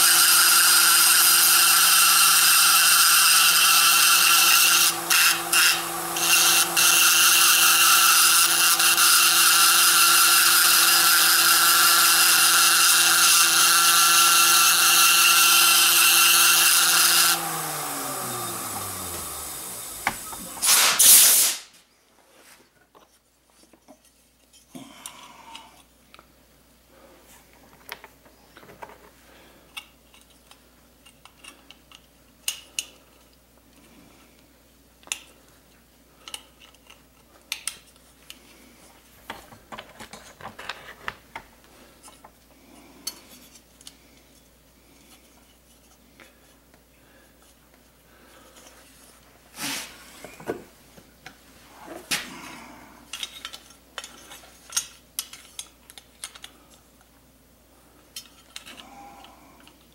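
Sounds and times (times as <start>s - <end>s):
metal parts clinking and scraping: 53.1s - 56.8s, 58.1s - 58.9s.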